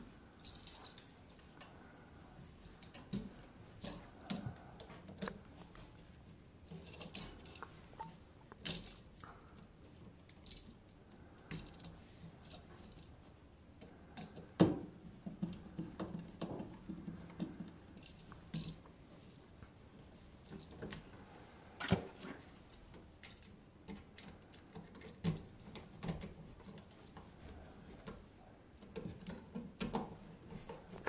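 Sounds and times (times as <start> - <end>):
small metallic clicks and rattles: 0.4 - 1.8, 2.8 - 5.9, 6.6 - 13.2, 13.8 - 14.7, 15.3 - 19.5, 20.4 - 21.1, 22.7 - 27.3, 28.8 - 30.1.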